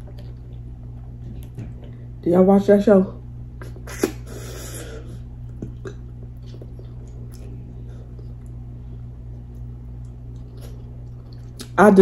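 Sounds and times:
steady low hum: 0.0s - 12.0s
wet mouth clicks and smacks: 5.5s - 8.6s.

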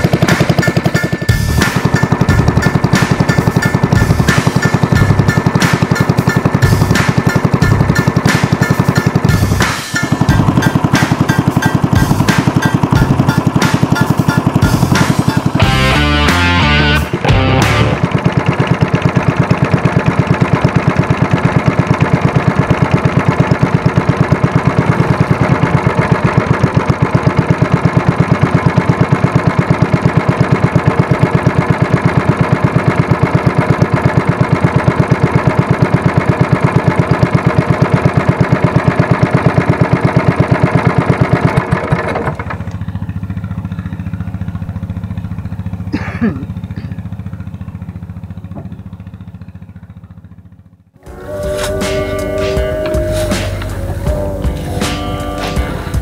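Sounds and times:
boat engine running: 0.0s - 56.0s.

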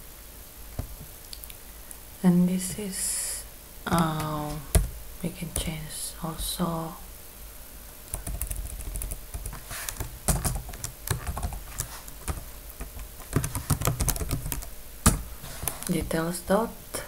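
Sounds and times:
keyboard typing clicks: 8.1s - 14.7s.

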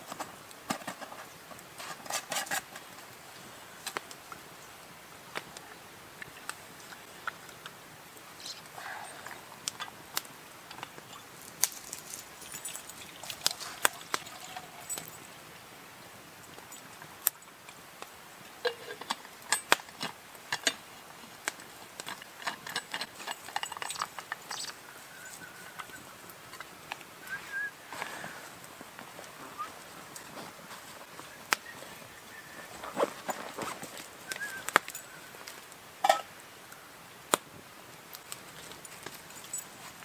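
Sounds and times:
campfire crackling and popping: 0.0s - 40.0s
metal flask and cup clinking: 18.6s - 19.8s, 36.0s - 36.3s.

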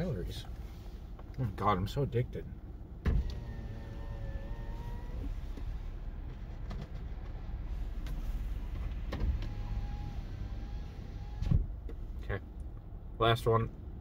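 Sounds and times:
car cabin engine rumble: 0.0s - 14.0s.

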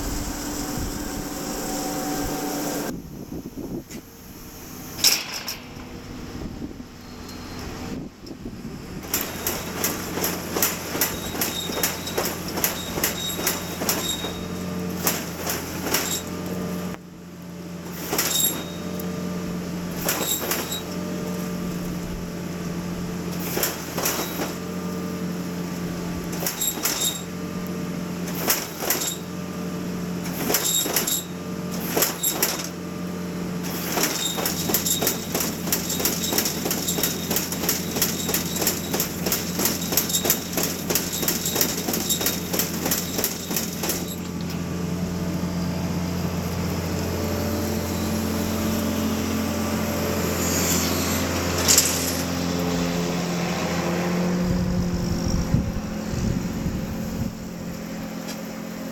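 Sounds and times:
cotton picker engine running: 0.0s - 3.2s, 5.8s - 58.9s
tractor engine running: 0.0s - 5.0s, 5.6s - 58.9s
machinery clicks and knocks: 9.0s - 16.4s, 17.9s - 19.0s, 19.9s - 21.5s, 23.3s - 24.6s, 26.2s - 27.3s, 28.3s - 29.3s, 30.2s - 32.8s, 33.6s - 44.6s.

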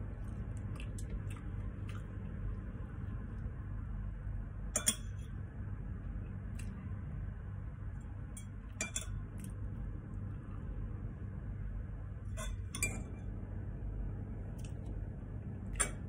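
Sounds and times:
cutlery clinking on a ceramic bowl: 4.7s - 5.2s, 8.4s - 9.2s, 12.4s - 13.2s.

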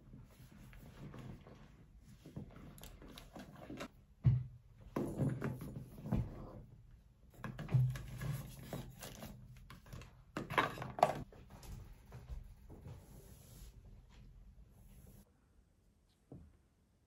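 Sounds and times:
rustling and knocks of packing: 2.2s - 6.6s.

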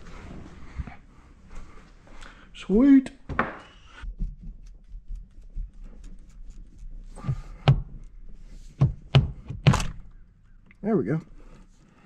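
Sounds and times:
steering wheel being tugged: 7.1s - 9.6s
sharp knocks: 7.2s - 7.9s.

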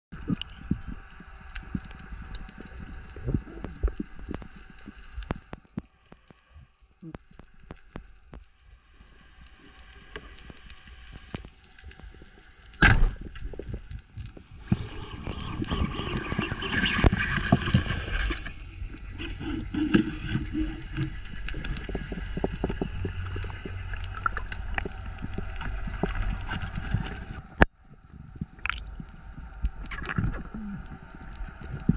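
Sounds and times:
underwater water noise: 0.1s - 31.9s
faint underwater clicks: 0.2s - 31.9s
sharp crack: 12.7s - 13.4s.

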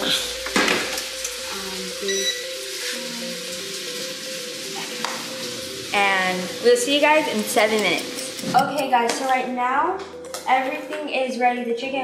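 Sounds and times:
oven control panel beep: 0.0s - 2.7s
soft background music: 0.0s - 12.0s.

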